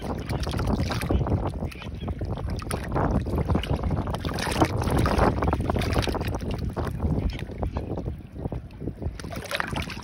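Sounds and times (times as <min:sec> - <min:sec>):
small waves sloshing: 0:00.0 - 0:07.5, 0:09.1 - 0:10.0
wind rumbling on microphone: 0:00.0 - 0:10.0.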